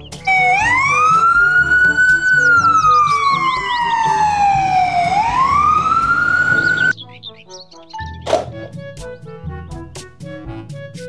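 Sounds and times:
ambulance siren wailing: 0:00.2 - 0:07.0.

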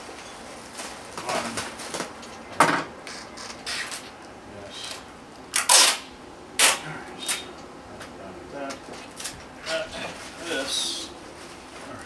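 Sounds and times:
bubble wrap rustling and crinkling: 0:00.0 - 0:02.2, 0:09.7 - 0:12.0
sharp bubble wrap crackles: 0:00.5 - 0:02.2.

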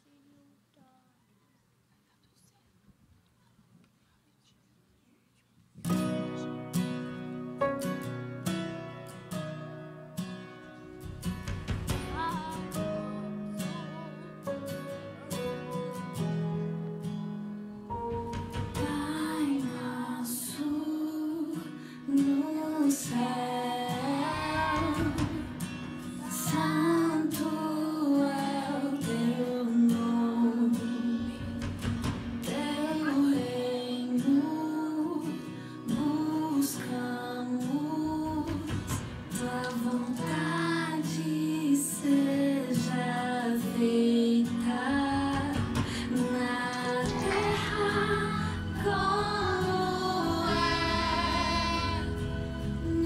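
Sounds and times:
guitar: 0:05.7 - 0:53.0
children's choir singing: 0:18.6 - 0:31.4, 0:32.5 - 0:35.2, 0:39.4 - 0:53.0.

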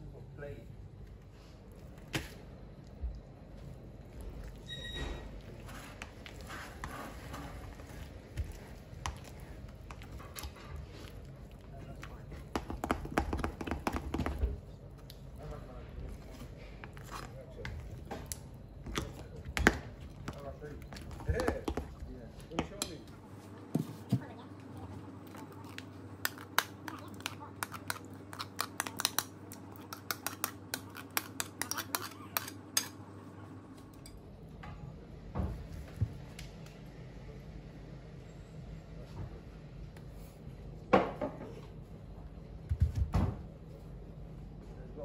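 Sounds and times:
spoon scraping a bowl: 0:27.2 - 0:33.0.

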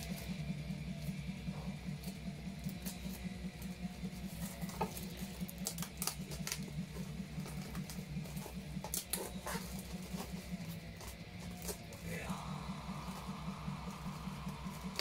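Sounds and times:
low pulsing sound: 0:00.0 - 0:15.0
paper sleeves rustling: 0:00.0 - 0:15.0.

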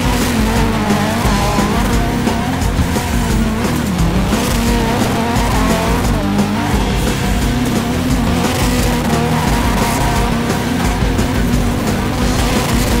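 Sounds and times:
car engine revving hard: 0:00.0 - 0:13.0.

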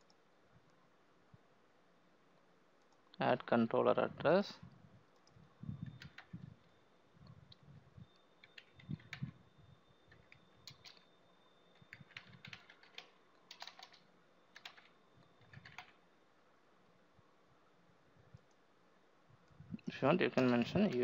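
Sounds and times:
typing on computer keyboard: 0:05.2 - 0:06.4, 0:08.4 - 0:09.4, 0:10.1 - 0:11.1, 0:11.7 - 0:16.0.

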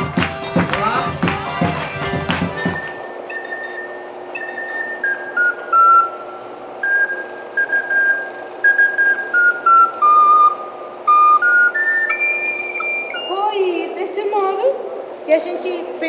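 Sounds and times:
band music with accordion: 0:00.0 - 0:03.0.

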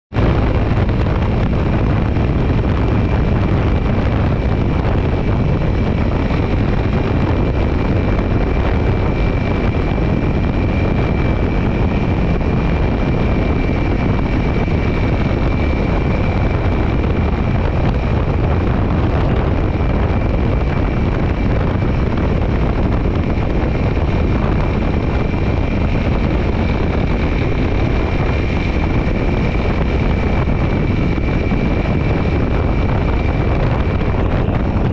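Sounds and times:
wind noise on microphone: 0:00.1 - 0:34.9.

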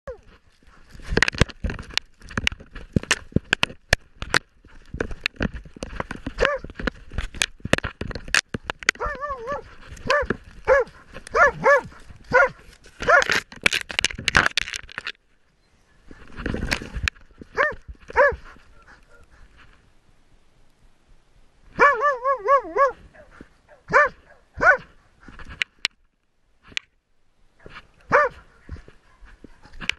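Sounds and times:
dog barking: 0:06.4 - 0:06.6, 0:09.0 - 0:13.3, 0:17.5 - 0:19.3, 0:21.8 - 0:24.9, 0:27.6 - 0:29.3.

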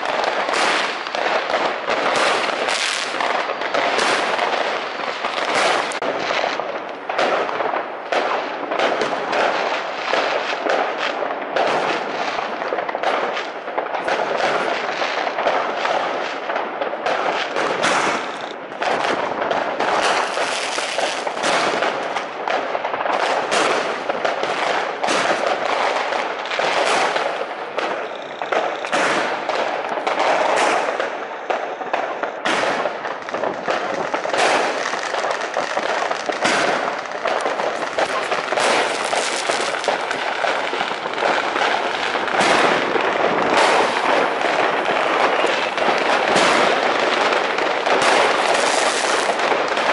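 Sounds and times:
fireworks bangs and crackles: 0:00.0 - 0:49.9.

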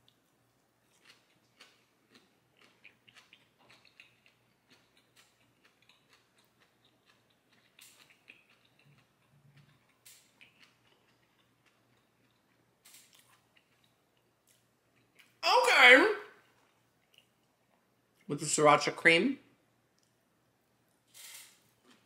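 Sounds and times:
chewing crisp food: 0:00.0 - 0:15.4, 0:16.4 - 0:18.3, 0:21.7 - 0:22.0.

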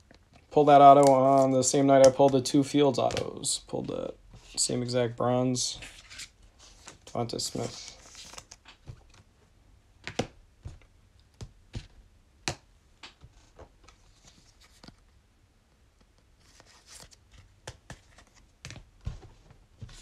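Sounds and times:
cards tapping and snapping: 0:00.9 - 0:03.4, 0:10.0 - 0:13.7, 0:17.6 - 0:18.9
papery rustle: 0:16.4 - 0:18.5.

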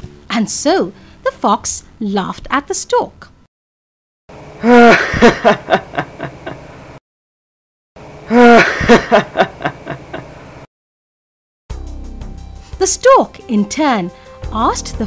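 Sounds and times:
cartoon fox laughing: 0:04.6 - 0:06.6, 0:08.3 - 0:10.3.

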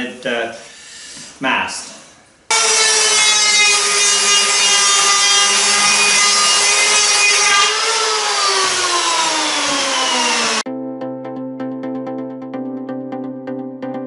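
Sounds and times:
power planer whining: 0:02.5 - 0:10.7.

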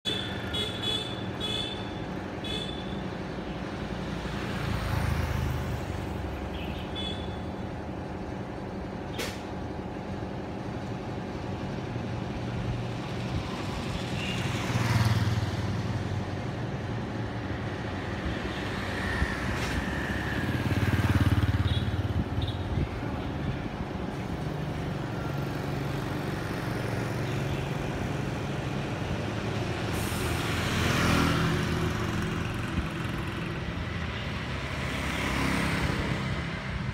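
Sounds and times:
steady engine hum: 0:00.0 - 0:36.9
motorbikes passing: 0:12.7 - 0:36.9.

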